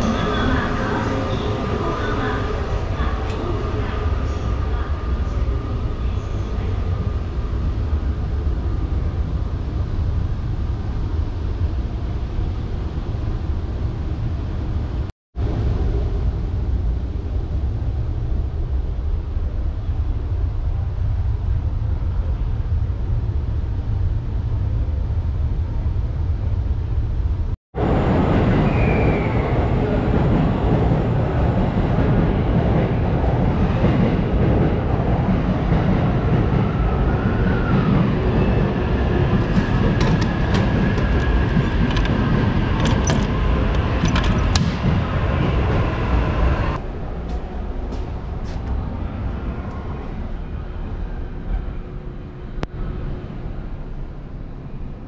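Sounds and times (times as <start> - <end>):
railway platform noise: 0.0 - 55.0
train low rumble: 0.0 - 55.0.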